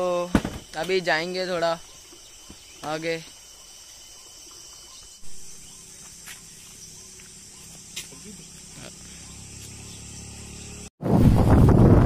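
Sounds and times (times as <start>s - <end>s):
insects shrilling: 0.0s - 10.9s.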